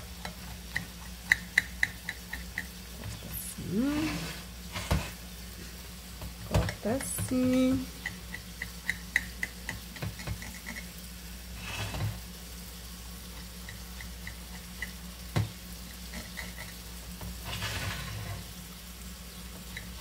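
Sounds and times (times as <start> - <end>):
steady low hum: 0.0 - 20.0
knife scraping on plate: 17.4 - 18.5.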